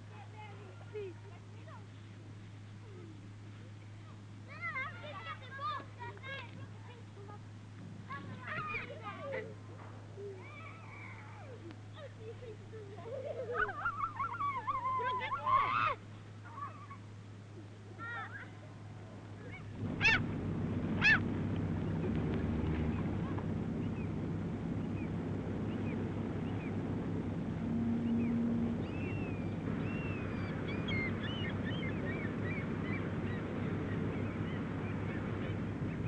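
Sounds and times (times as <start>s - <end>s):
low background rumble: 0.0s - 36.0s
birds chirping: 19.4s - 36.0s
loud short bird calls: 20.0s - 20.2s.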